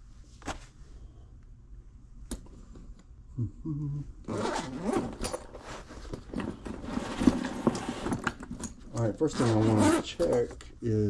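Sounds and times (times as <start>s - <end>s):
low hum of a voice: 3.3s - 4.4s
rasping scraping handling noise: 4.4s - 10.5s.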